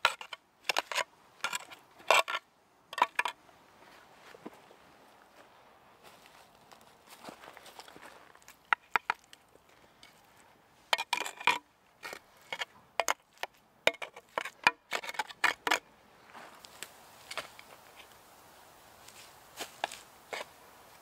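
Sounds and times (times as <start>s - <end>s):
tool blade knocking and scraping stone: 0.0s - 2.4s, 3.0s - 3.4s, 8.7s - 9.2s, 10.9s - 15.9s.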